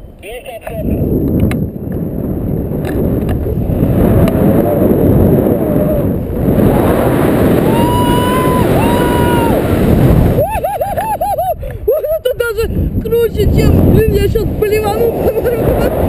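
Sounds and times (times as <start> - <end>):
wind buffeting microphone: 0.6 - 16.0
woman screaming: 7.6 - 9.6, 10.4 - 12.3.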